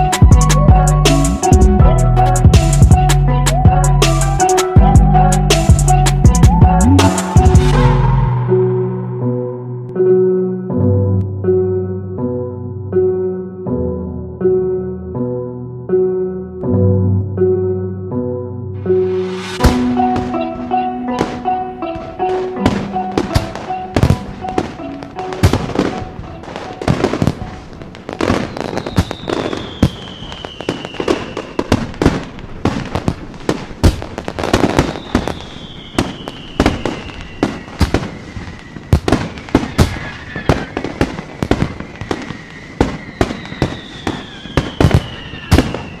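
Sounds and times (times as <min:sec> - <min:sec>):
fireworks bangs and crackles: 0:19.2 - 0:46.0
descending firework whistles: 0:25.4 - 0:33.1, 0:34.2 - 0:46.0.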